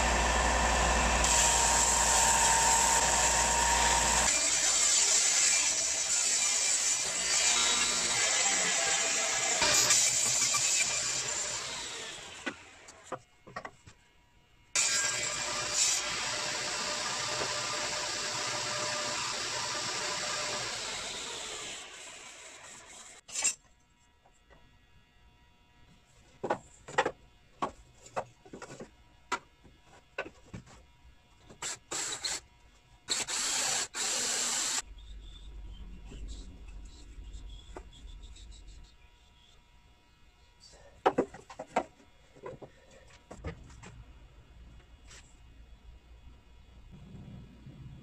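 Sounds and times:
table saw cutting wood: 0:00.0 - 0:13.0, 0:14.8 - 0:23.2, 0:33.1 - 0:34.8.

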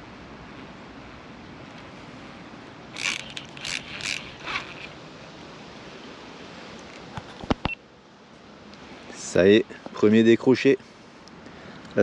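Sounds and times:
wind hiss: 0:00.0 - 0:12.0
fishing reel whirring: 0:02.9 - 0:05.0.

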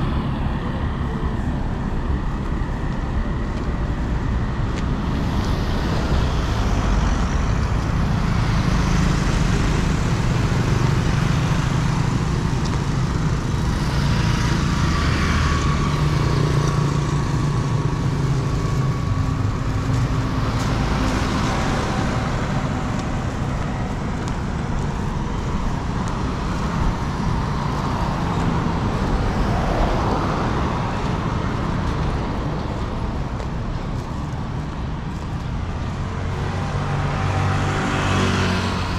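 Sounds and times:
road traffic: 0:00.0 - 0:38.9.

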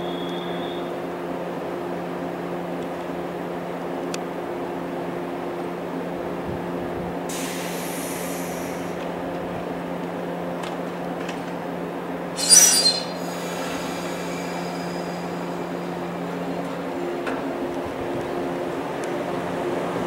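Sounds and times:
train equipment humming: 0:00.0 - 0:20.0
compressed air hissing: 0:07.3 - 0:09.0, 0:12.4 - 0:15.6.

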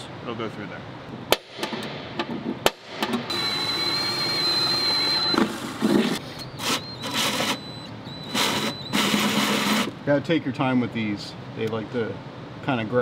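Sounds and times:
cordless drill with hole saw: 0:03.3 - 0:09.9.

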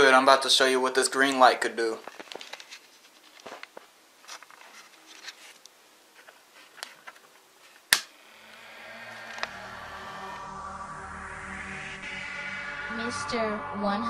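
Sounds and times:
music: 0:08.8 - 0:14.0.

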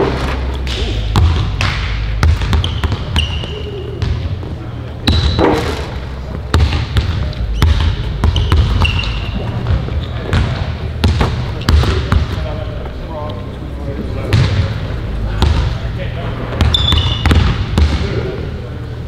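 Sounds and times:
basketballs bouncing on wooden floor: 0:01.1 - 0:04.3, 0:06.4 - 0:12.4, 0:16.6 - 0:18.1
sneaker squeaks: 0:02.5 - 0:04.2, 0:05.0 - 0:06.0, 0:07.4 - 0:10.6, 0:16.6 - 0:17.5.

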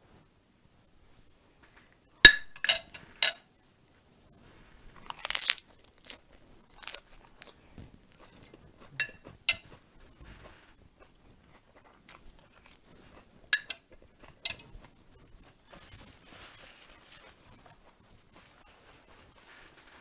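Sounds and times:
spoon clinking on a plate: 0:02.3 - 0:03.4, 0:09.0 - 0:09.8, 0:13.5 - 0:14.8
lettuce crunching: 0:04.8 - 0:20.0.

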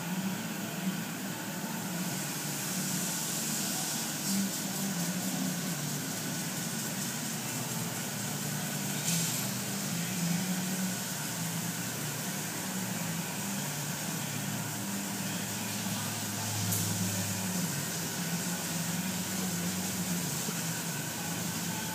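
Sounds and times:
low mechanical hum: 0:00.0 - 0:21.9.

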